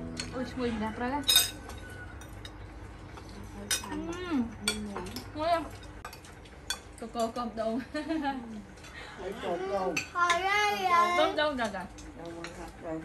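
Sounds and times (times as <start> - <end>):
cutlery clinking on plates: 1.2 - 2.6.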